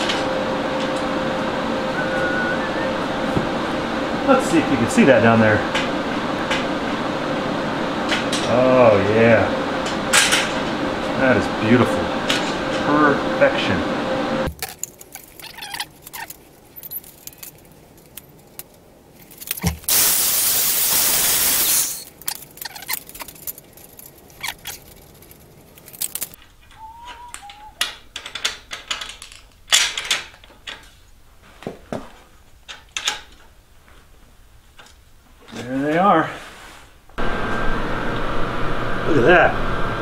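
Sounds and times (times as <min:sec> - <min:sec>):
loud hiss: 0:19.9 - 0:22.1
steel rods and nuts clinking: 0:21.6 - 0:30.9.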